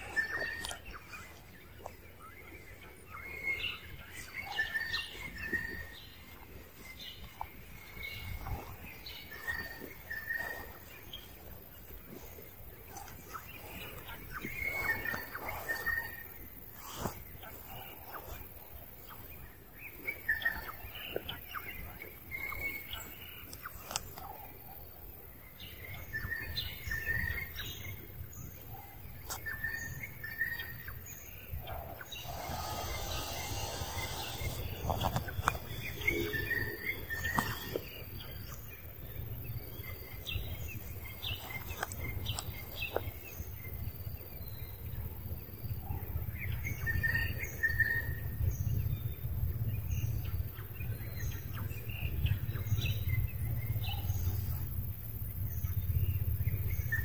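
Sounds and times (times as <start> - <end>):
birds chirping: 0.0 - 57.0
steady low rumble: 0.0 - 57.0.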